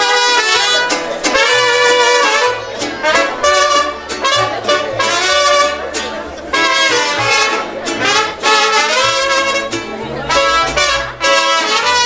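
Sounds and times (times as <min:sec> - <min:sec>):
brass band playing: 0:00.0 - 0:12.0.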